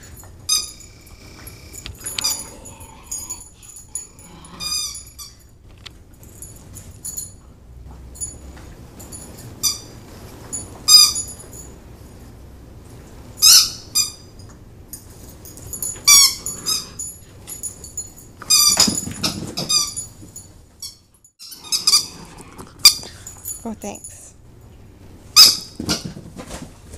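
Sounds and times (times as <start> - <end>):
dog whining: 0.6 - 5.5, 21.5 - 23.8.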